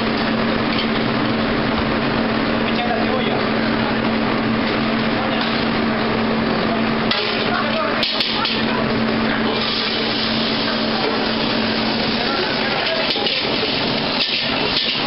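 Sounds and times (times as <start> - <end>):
kitchen hum: 0.0 - 15.0
oil sizzling in a wok: 9.5 - 15.0.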